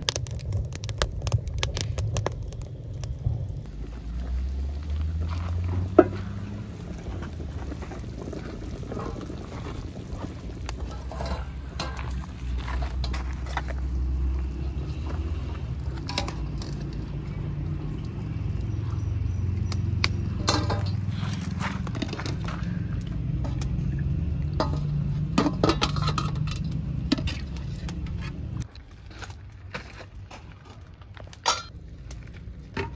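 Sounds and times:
broth bubbling at a boil: 0.0 - 29.0
ladle scraping metal: 10.8 - 13.8.

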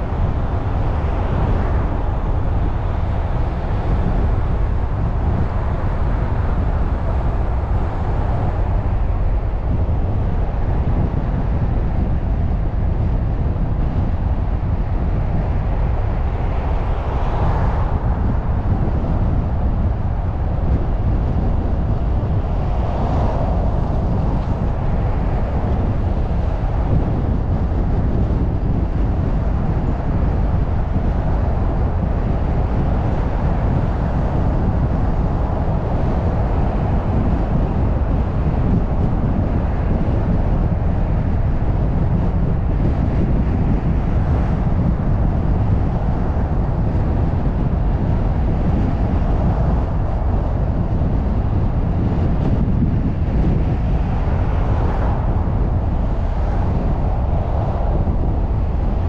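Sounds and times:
car driving on city street: 0.0 - 59.0.

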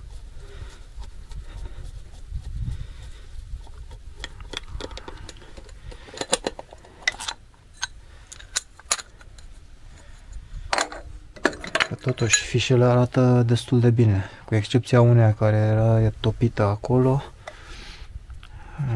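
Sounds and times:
engine parts clicking and rattling: 3.8 - 12.6.

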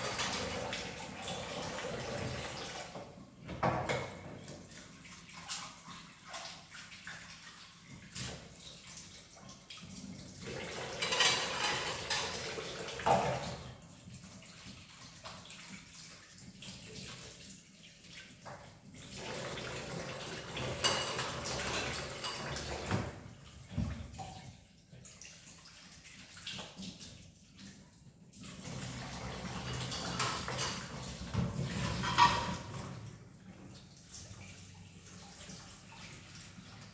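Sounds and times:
tap water running: 0.0 - 36.9
plates and bowls clinking: 11.0 - 13.3, 20.7 - 23.1, 29.6 - 30.9, 31.6 - 32.8.

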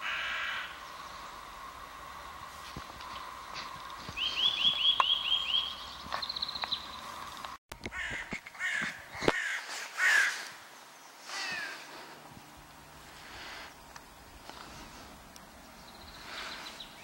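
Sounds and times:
harsh bird calls: 0.0 - 1.7, 3.2 - 12.2, 13.2 - 17.0
songbird chirping and trilling: 0.3 - 1.8, 3.0 - 8.2, 13.6 - 17.0.

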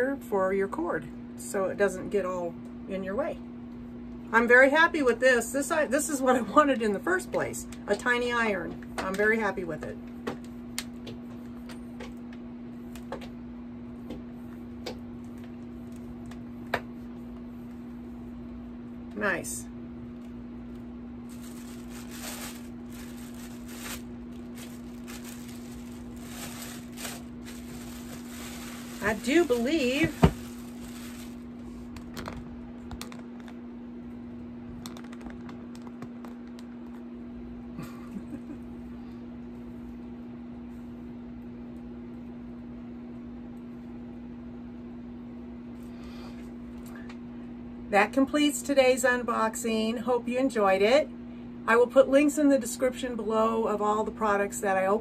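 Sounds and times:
steady hum: 0.0 - 55.0
hands handling plastic packaging: 21.2 - 33.6.

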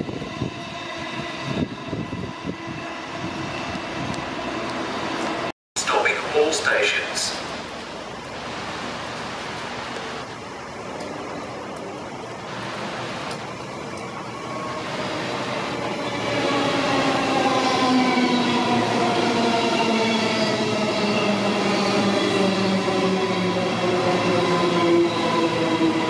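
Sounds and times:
rain hissing: 5.8 - 15.8.

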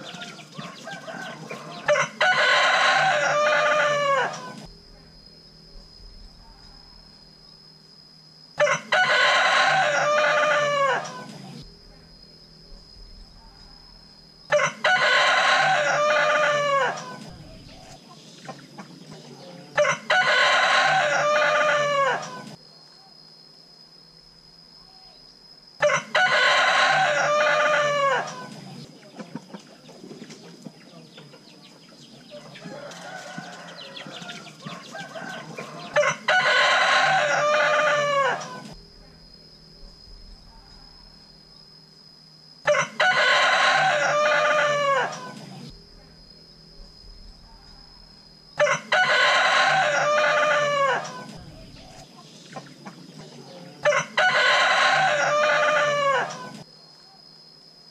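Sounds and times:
rooster crowing: 0.0 - 4.7, 8.6 - 11.5, 14.5 - 17.7, 19.4 - 22.6, 25.8 - 28.7, 32.3 - 38.8, 42.6 - 45.6, 48.0 - 51.9, 53.3 - 56.7.

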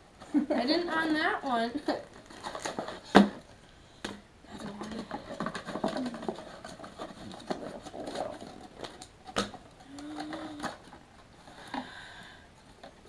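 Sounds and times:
plastic packaging rustling: 1.8 - 3.6, 4.5 - 11.8.

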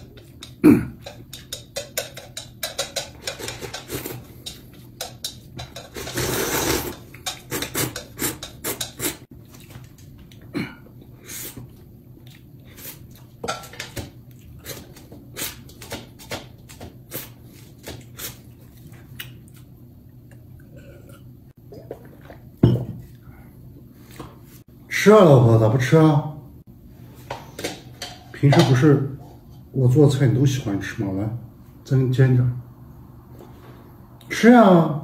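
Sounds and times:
loud slurp: 6.0 - 9.2.

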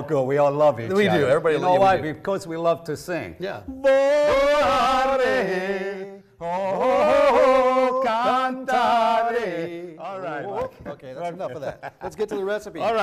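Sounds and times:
man singing operatically: 3.7 - 10.6.

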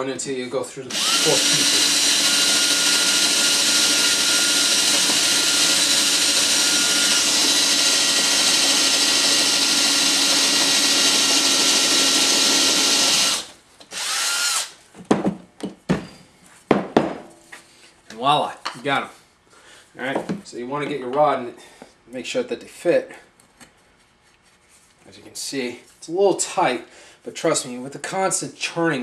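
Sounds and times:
cordless drill boring into wood: 0.9 - 14.8.

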